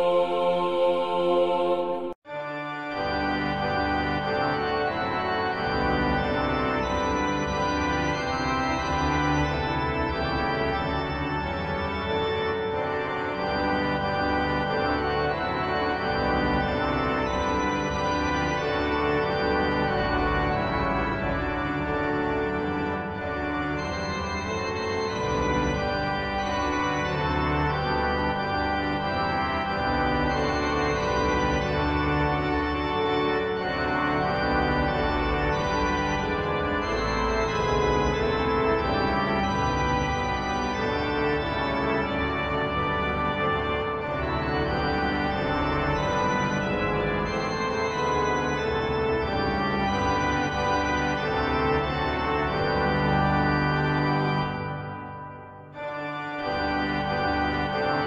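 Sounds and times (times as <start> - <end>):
organ chords: 0.0 - 58.0.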